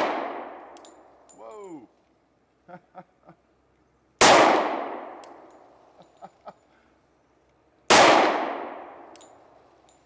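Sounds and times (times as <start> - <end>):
pistol shots echoing: 0.0 - 0.8, 4.2 - 5.4, 7.9 - 9.2
faint clinks and knocks: 0.7 - 2.1, 5.3 - 6.8, 9.1 - 10.0.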